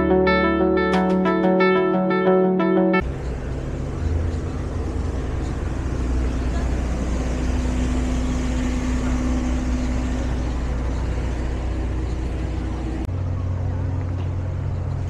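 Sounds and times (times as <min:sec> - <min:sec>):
traffic engines humming: 0:03.0 - 0:15.0.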